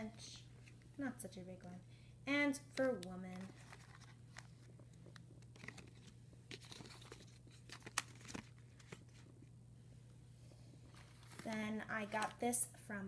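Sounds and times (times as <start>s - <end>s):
paper and plastic crinkling: 2.8s - 9.3s, 10.9s - 12.5s.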